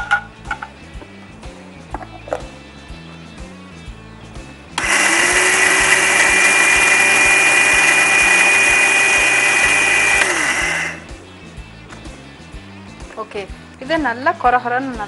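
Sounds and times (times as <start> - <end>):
mixer grinder grinding spices: 4.8 - 11.2.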